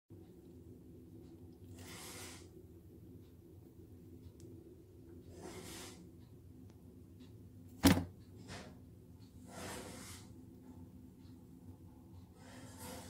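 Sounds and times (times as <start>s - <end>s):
low steady hum: 0.1s - 1.9s, 2.5s - 5.3s
sharp knock: 7.8s - 8.1s.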